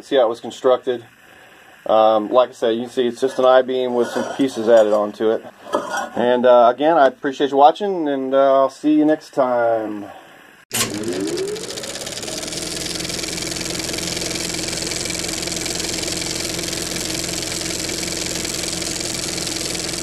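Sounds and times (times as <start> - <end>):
engine running: 10.7 - 20.0.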